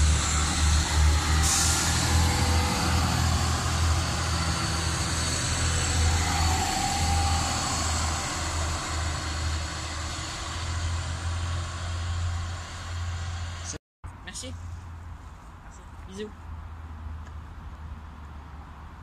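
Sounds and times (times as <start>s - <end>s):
hiss of air: 0.0s - 10.3s
train engines humming: 0.0s - 13.8s
train rumbling over track: 0.0s - 14.4s.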